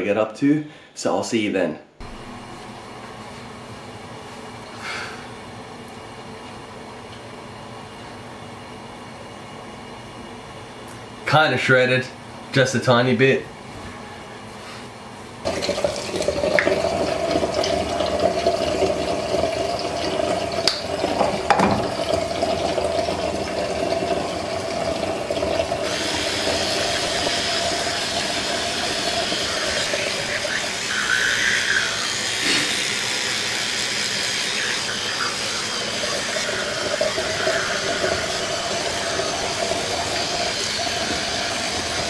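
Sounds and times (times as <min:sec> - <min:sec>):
tap running into sink: 0:15.5 - 0:19.8, 0:20.5 - 0:27.4
electric toothbrush buzzing: 0:24.1 - 0:42.0.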